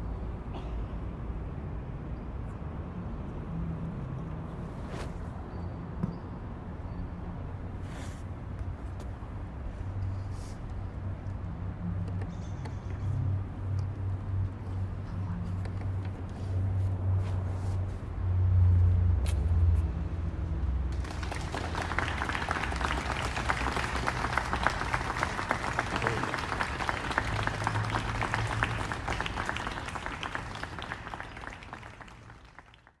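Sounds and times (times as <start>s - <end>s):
audience applauding: 20.9s - 33.0s.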